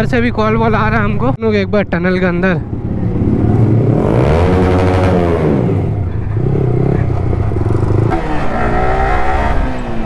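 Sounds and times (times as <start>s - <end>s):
motorcycle engine running: 2.6s - 10.0s.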